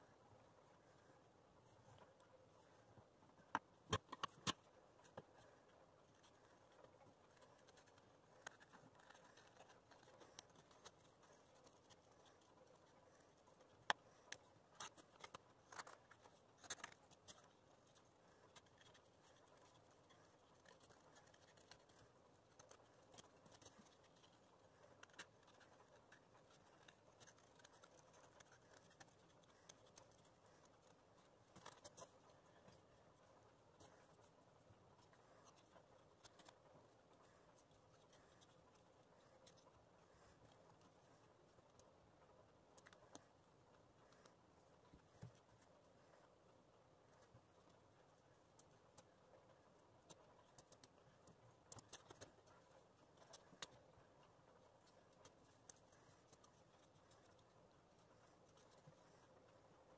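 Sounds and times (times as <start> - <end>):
scissors snipping paper: 6.1 - 32.8.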